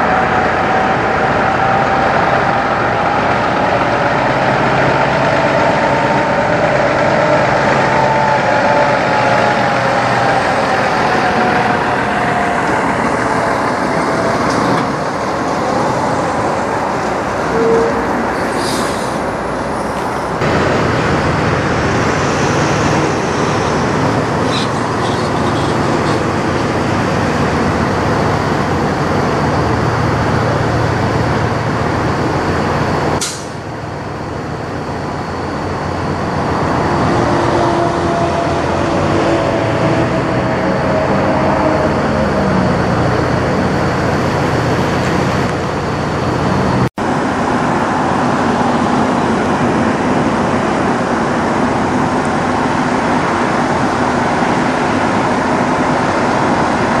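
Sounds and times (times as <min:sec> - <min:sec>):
truck diesel engines driving past: 0:00.0 - 0:57.0
air brake hiss: 0:18.4 - 0:19.3, 0:33.2 - 0:33.6.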